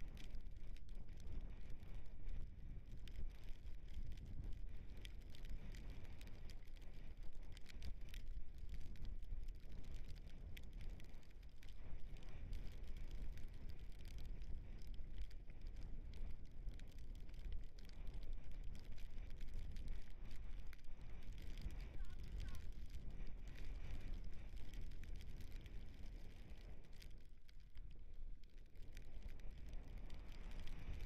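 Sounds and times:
small rattles and clicks: 0.0 - 31.0
wind buffeting microphone: 11.8 - 26.7.

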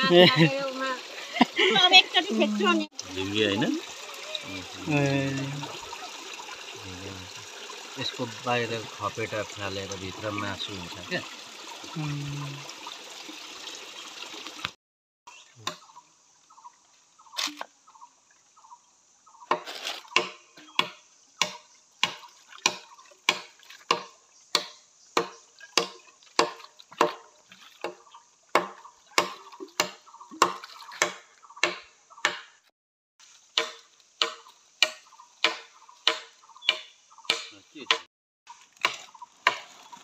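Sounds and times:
blade chopping bamboo: 19.5 - 32.5, 33.5 - 38.1, 38.8 - 39.7.

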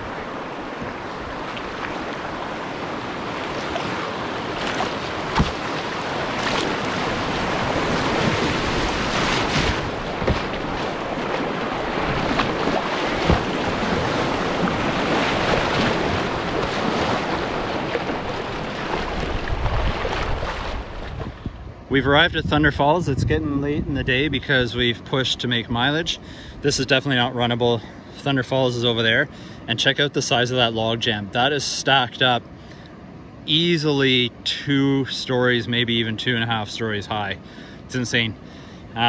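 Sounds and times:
river water rushing and splashing: 0.0 - 21.4
sharp knocks: 5.3 - 5.6, 10.2 - 10.6.

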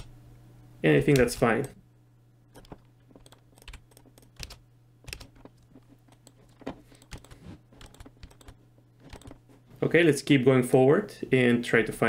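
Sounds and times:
faint low hum: 0.0 - 12.0
keyboard and mouse clicks: 1.1 - 1.8, 2.5 - 9.4.

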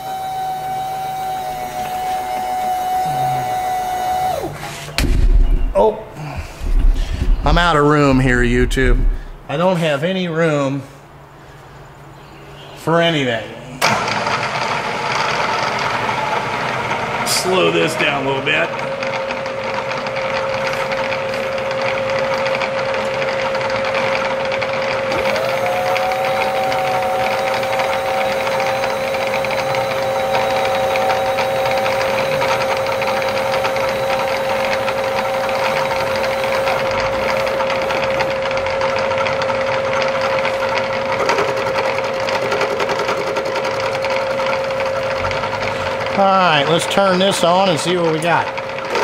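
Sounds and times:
milling machine running: 0.0 - 9.5, 13.8 - 49.0
higher sliding tone: 0.0 - 9.7.

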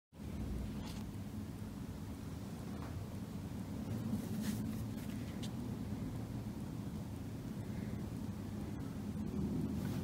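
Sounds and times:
low steady hum: 0.2 - 10.0
soft rustle: 3.8 - 5.7.

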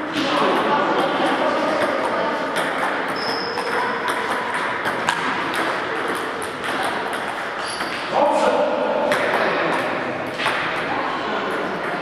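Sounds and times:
table tennis balls clicking: 0.4 - 8.1.

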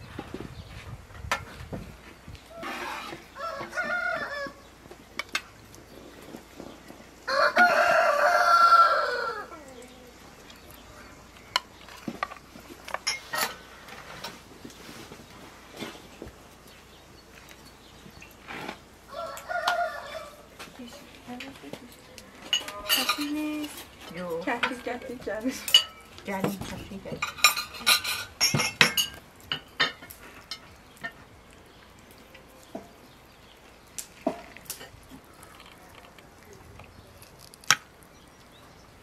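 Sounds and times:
chicken calls: 2.5 - 5.1, 5.9 - 11.3, 19.0 - 20.6
rooster crowing: 3.3 - 4.6, 7.3 - 9.7, 19.1 - 20.5.

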